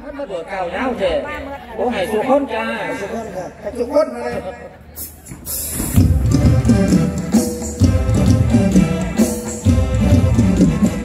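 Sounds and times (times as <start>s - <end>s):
band music with bass and drums: 5.0s - 11.0s.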